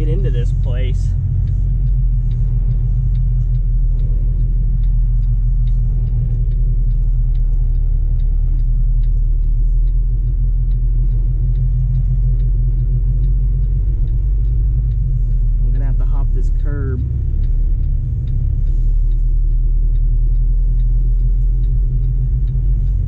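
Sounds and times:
diesel engine low rumble: 0.0s - 23.0s
faint ticking: 0.0s - 23.0s.

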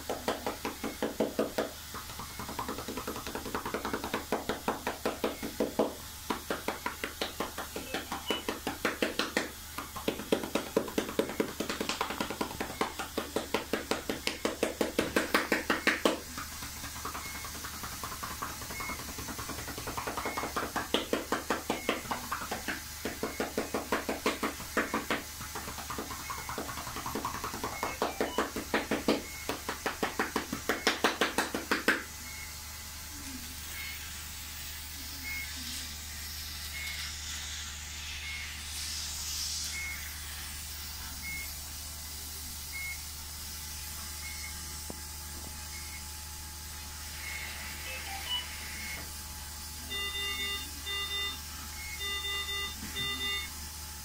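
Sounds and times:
hands clapping on chest: 0.0s - 32.2s
faint short beep: 49.9s - 53.5s.

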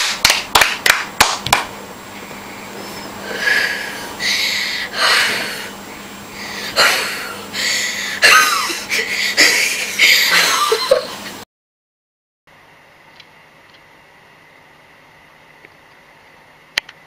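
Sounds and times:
puffs of breath blowing: 2.1s - 8.2s.

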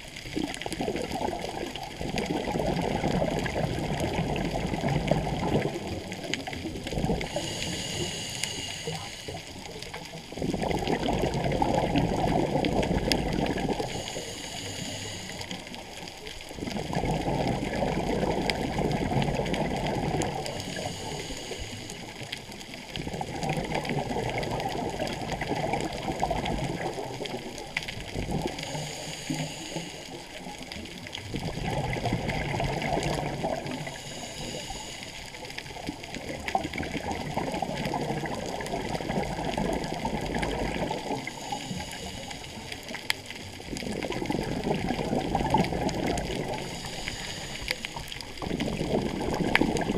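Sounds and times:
exhaled air bubbling underwater: 0.0s - 49.9s
diver inhaling through regulator: 7.1s - 9.6s, 13.6s - 15.8s, 20.2s - 22.1s, 28.4s - 30.4s, 33.6s - 35.4s, 41.0s - 43.0s, 45.9s - 48.4s.

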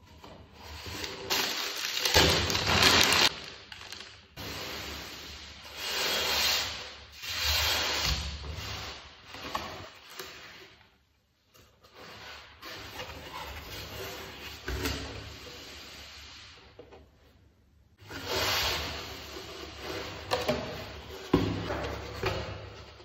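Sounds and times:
tissue paper crinkling: 1.3s - 4.2s.

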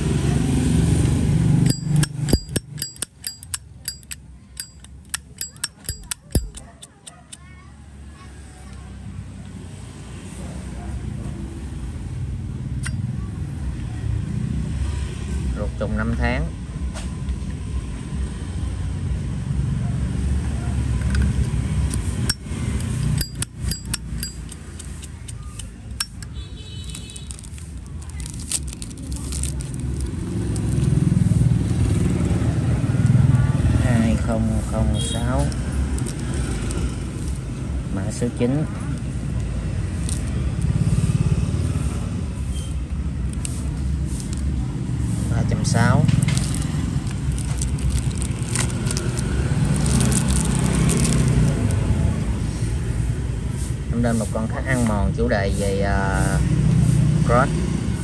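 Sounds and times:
lighter lid clicking: 1.6s - 7.0s.

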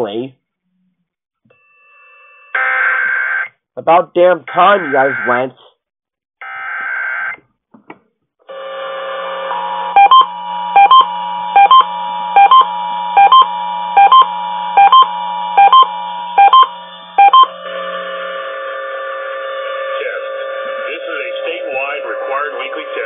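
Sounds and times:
alert data burst: 4.6s - 5.5s, 10.0s - 17.5s
sharp paired beeps: 10.0s - 17.5s.

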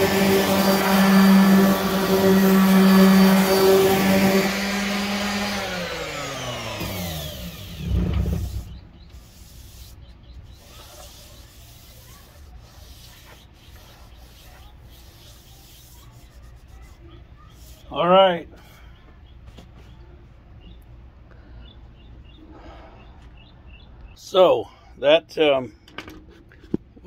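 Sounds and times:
sander motor whine spinning down: 0.0s - 8.8s
sander rubbing against wood: 0.0s - 18.0s.

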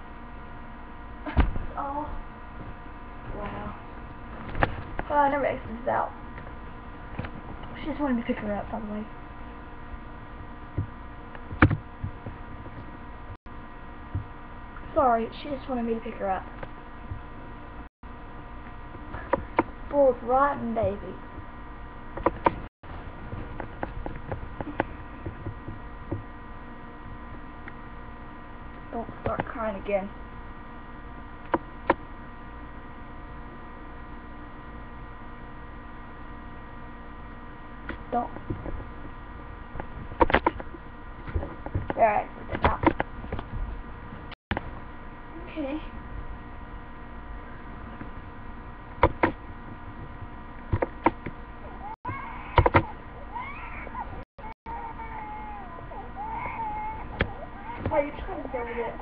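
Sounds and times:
electrical hum: 0.0s - 59.0s.

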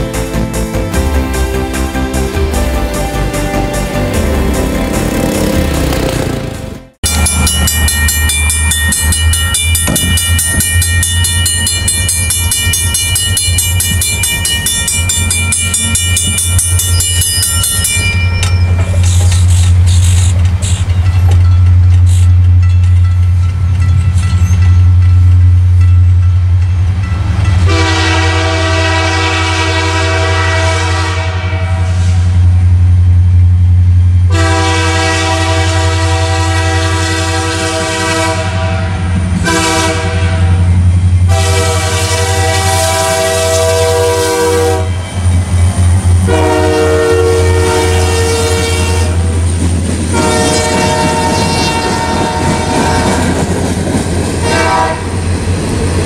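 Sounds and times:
train rumble: 0.0s - 56.0s
locomotive air horn blasts: 27.6s - 32.2s, 34.3s - 40.7s, 41.3s - 45.0s, 46.2s - 49.4s, 50.1s - 53.4s, 54.4s - 55.1s.

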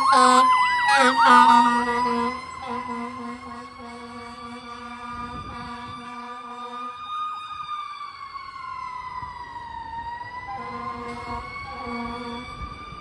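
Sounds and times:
low-pitched horn blasts: 0.0s - 7.0s, 10.5s - 12.6s
fire truck siren wailing: 0.0s - 13.0s.

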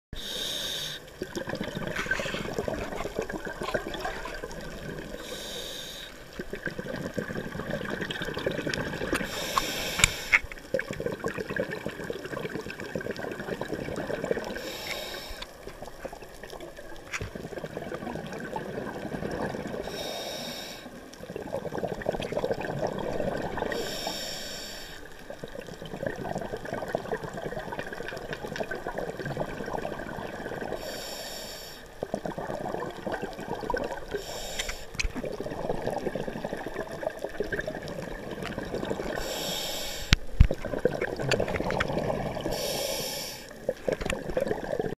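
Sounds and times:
regulator hissing on inhale: 0.2s - 1.2s, 1.9s - 2.8s, 5.1s - 6.4s, 9.2s - 10.6s, 14.5s - 15.6s, 19.8s - 21.0s, 23.7s - 25.2s, 30.7s - 32.0s, 34.1s - 35.1s, 39.0s - 40.3s, 42.4s - 43.6s
exhaled air bubbling: 0.2s - 44.9s.

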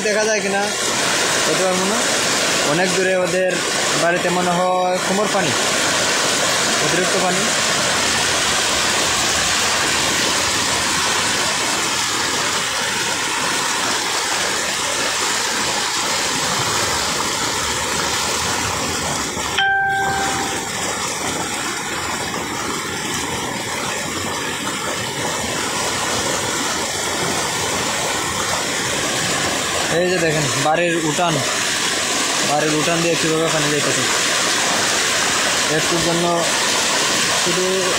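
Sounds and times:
floodwater rushing: 0.0s - 37.9s
short beep: 19.6s - 20.7s.

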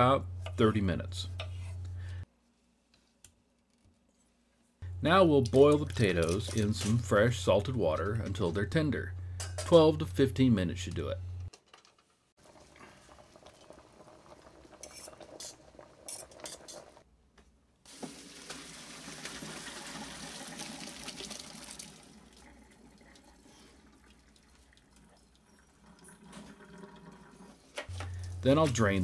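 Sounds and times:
water poured into strainer: 17.9s - 27.4s
faint water sounds: 18.6s - 28.4s.

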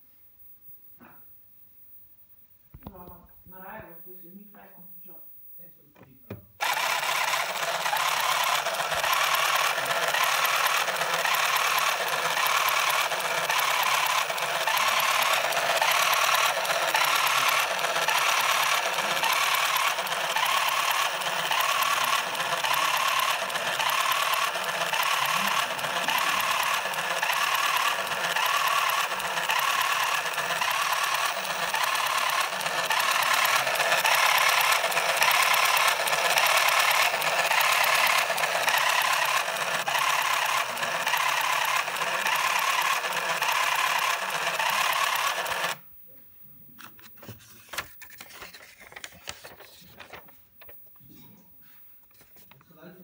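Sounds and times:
printer mechanical buzz and rattle: 6.6s - 45.8s.

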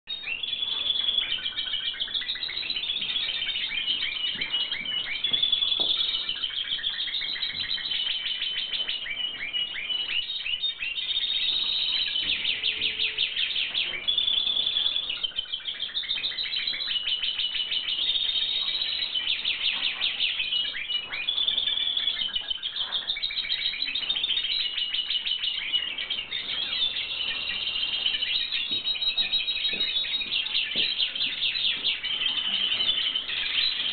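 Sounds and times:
finches twittering and trilling: 0.1s - 33.9s.

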